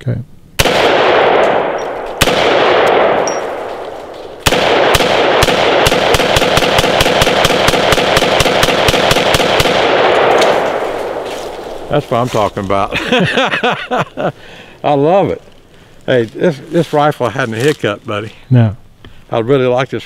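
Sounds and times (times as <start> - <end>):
rifle gunshots with echo: 0.6 - 11.8.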